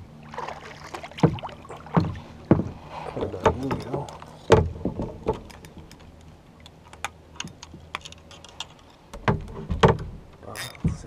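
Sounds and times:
fishing gear clicking and tapping: 0:02.5 - 0:11.0.

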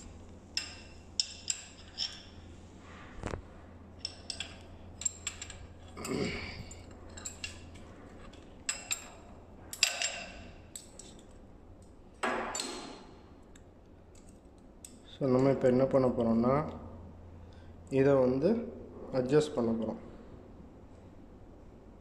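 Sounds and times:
low machinery hum: 0:00.0 - 0:22.0
metal keys clinking: 0:04.0 - 0:11.4.

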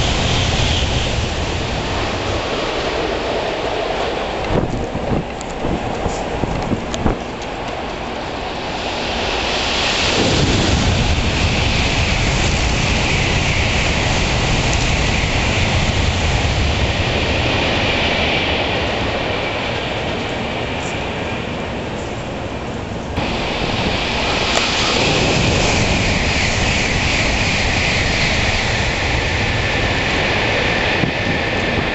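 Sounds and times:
bullet train passing: 0:00.0 - 0:31.9
steady rain: 0:00.0 - 0:31.9.

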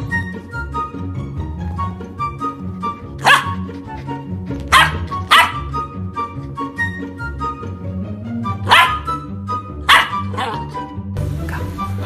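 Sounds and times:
background music: 0:00.0 - 0:12.0
puppy barking: 0:03.2 - 0:05.9, 0:08.6 - 0:09.2, 0:09.8 - 0:10.8.

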